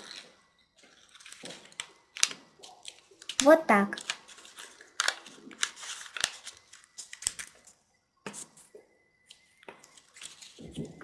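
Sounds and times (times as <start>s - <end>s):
paper crackling and rustling: 0.0s - 8.6s, 9.3s - 11.0s.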